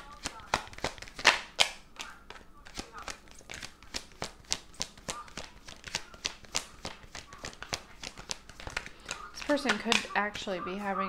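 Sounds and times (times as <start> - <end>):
cards being shuffled: 0.0 - 11.0.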